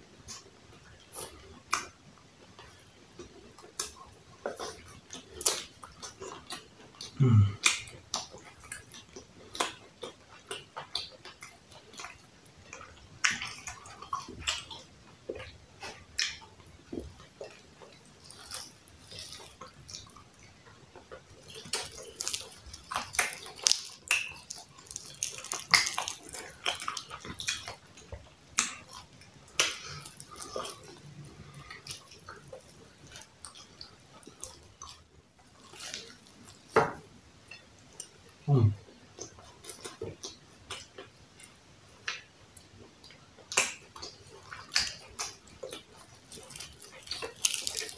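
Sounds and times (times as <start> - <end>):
chewing with wet smacks: 0.1 - 47.9
meat being torn by hand: 21.7 - 27.8, 44.6 - 47.9.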